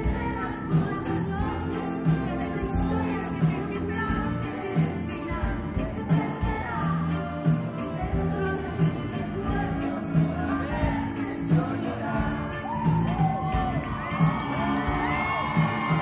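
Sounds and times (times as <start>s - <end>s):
bass: 0.0s - 16.0s
drums: 0.0s - 16.0s
electric guitar: 0.0s - 16.0s
woman singing: 0.0s - 16.0s
crowd whooping and cheering: 12.2s - 16.0s.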